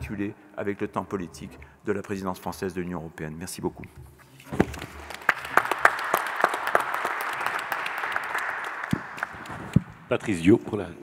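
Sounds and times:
audience applauding: 0:04.8 - 0:09.9.

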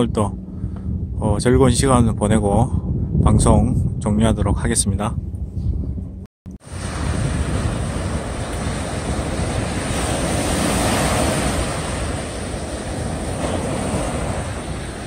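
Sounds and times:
wind buffeting microphone: 0:00.0 - 0:15.0
waves washing up a beach: 0:06.6 - 0:15.0.

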